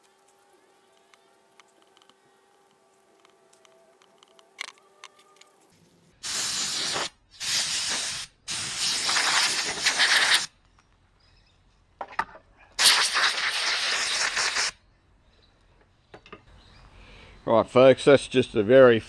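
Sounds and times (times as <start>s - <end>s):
sandpaper rubbing on rubber: 6.2s - 10.5s, 12.8s - 14.8s.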